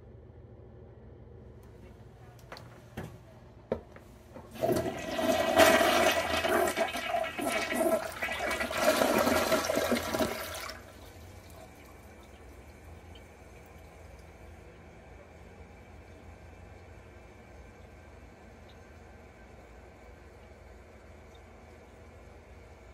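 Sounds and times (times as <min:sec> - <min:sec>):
toilet flush clicks: 0:04.4 - 0:12.4
toilet flushing water rush: 0:04.4 - 0:22.9.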